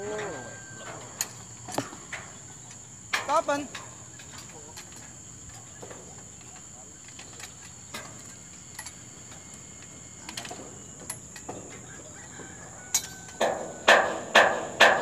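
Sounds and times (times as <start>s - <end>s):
insect trill: 0.0s - 15.0s
light metal clicks and taps: 12.9s - 13.5s.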